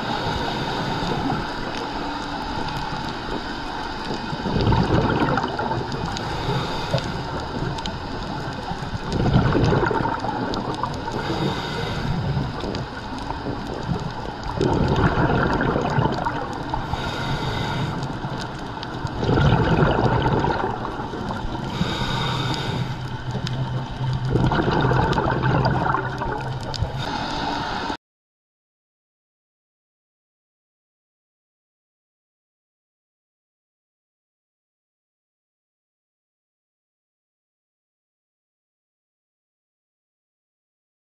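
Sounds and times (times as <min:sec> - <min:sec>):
underwater exhaled air bubbling: 0:00.0 - 0:28.0
regulator hiss: 0:06.0 - 0:09.1, 0:16.6 - 0:18.8, 0:20.8 - 0:24.0, 0:26.8 - 0:28.0.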